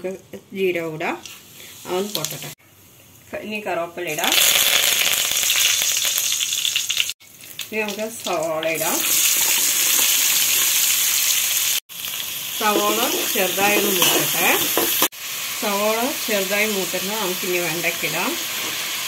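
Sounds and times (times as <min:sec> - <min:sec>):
oil sizzling in a pan: 0:01.2 - 0:03.3, 0:04.1 - 0:19.0.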